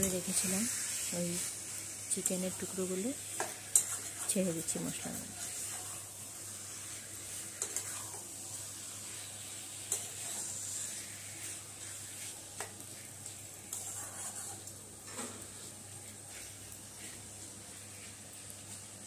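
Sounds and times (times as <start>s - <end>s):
chicken sizzling in a pan: 0.0s - 19.0s
spatula scraping and knocking pan: 3.3s - 4.3s, 7.5s - 8.3s, 11.8s - 15.6s.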